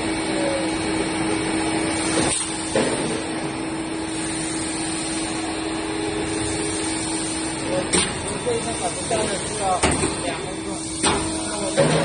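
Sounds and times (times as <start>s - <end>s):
steady hum: 0.0s - 12.0s
machinery noise: 4.0s - 12.0s.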